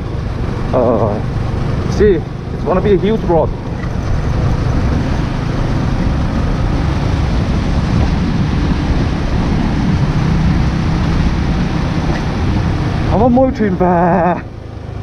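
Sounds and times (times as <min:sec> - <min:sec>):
wind rush: 0:00.0 - 0:13.8
motorcycle engine rumble: 0:00.0 - 0:15.0
tyres on dirt road: 0:00.0 - 0:15.0.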